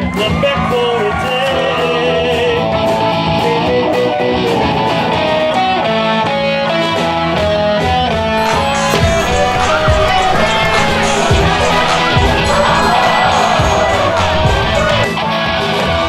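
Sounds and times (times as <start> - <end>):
person singing: 8.4 - 15.1
steady beat: 8.4 - 15.1.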